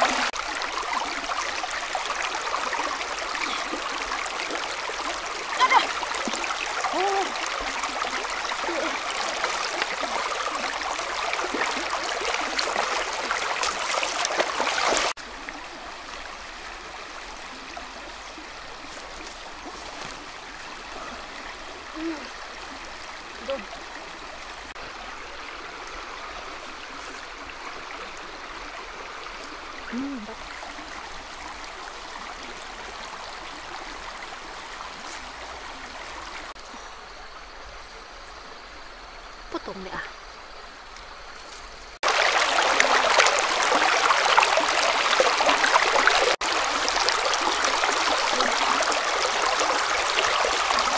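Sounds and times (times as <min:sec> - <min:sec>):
river rushing over rocks: 0:42.0 - 0:50.9.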